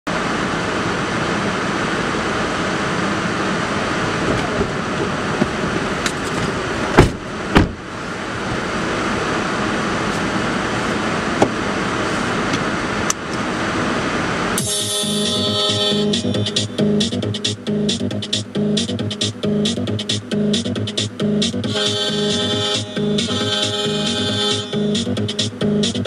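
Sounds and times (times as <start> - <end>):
rushing noise in car cabin: 0.1 - 26.0
car doors shutting: 4.2 - 8.7.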